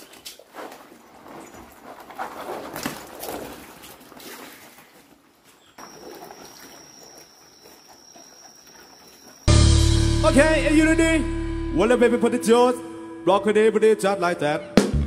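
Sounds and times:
water splashing: 0:00.0 - 0:09.5.

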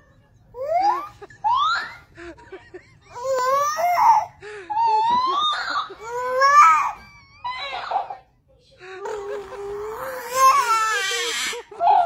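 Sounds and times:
baby crying: 0:03.2 - 0:08.1, 0:09.0 - 0:12.0.

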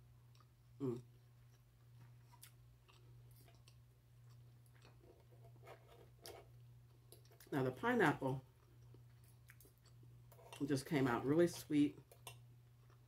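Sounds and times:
low steady hum: 0:00.0 - 0:13.0
person chewing: 0:00.2 - 0:07.5, 0:08.6 - 0:10.6, 0:12.0 - 0:13.0.

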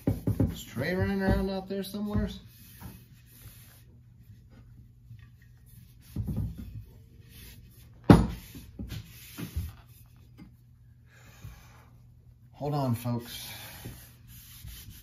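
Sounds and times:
axe knocking on workbench: 0:08.0 - 0:08.5.

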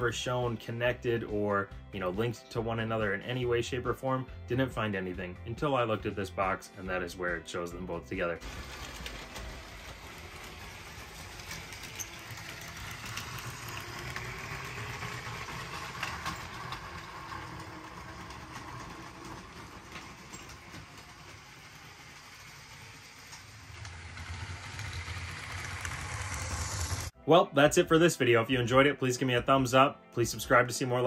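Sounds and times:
toy train whirring rattle: 0:08.4 - 0:27.1.

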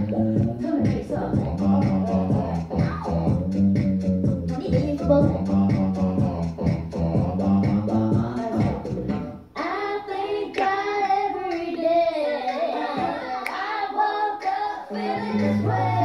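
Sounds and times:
backing music: 0:00.0 - 0:16.0
girl singing into a microphone: 0:04.5 - 0:05.4, 0:09.6 - 0:16.0.

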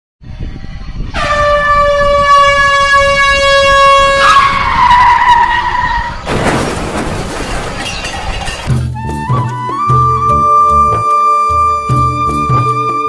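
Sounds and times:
train horn blast: 0:01.1 - 0:06.0
toy locomotive crashing into sand: 0:06.3 - 0:08.8.

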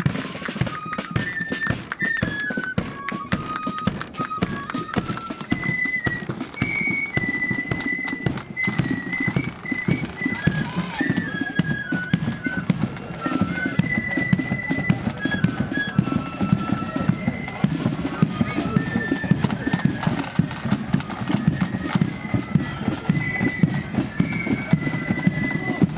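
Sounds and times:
flutes playing melody: 0:00.0 - 0:25.9
marching drums: 0:00.0 - 0:25.9.

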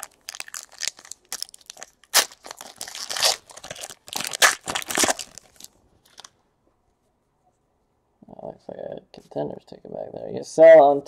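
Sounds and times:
foil wrapper crinkling: 0:00.0 - 0:06.3.

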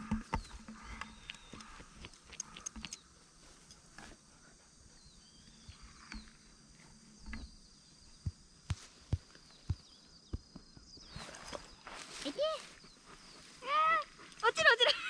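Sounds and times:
sharp clicks: 0:00.0 - 0:03.1.

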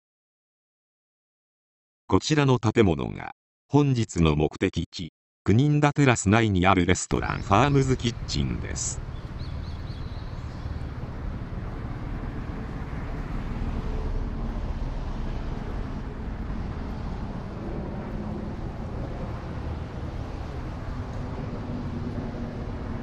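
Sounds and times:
road traffic hum: 0:07.3 - 0:23.0
wind rumble on microphone: 0:07.3 - 0:23.0.

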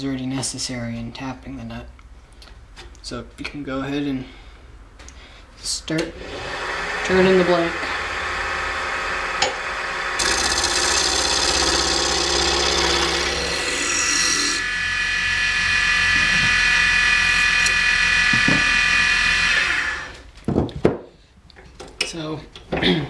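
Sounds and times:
lathe motor humming: 0:06.2 - 0:20.2
turning tool shaving wood: 0:06.2 - 0:20.2.

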